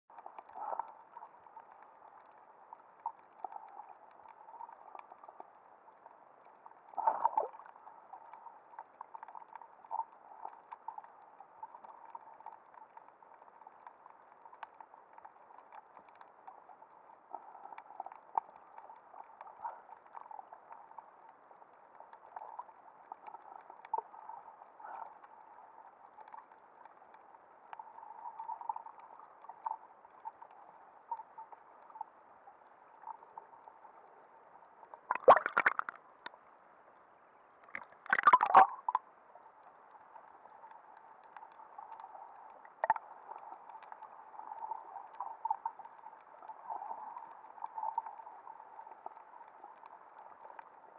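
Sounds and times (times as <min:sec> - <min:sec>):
muffled underwater hiss: 0:00.1 - 0:50.9
bursts of water noise: 0:35.0 - 0:36.3, 0:37.6 - 0:39.0.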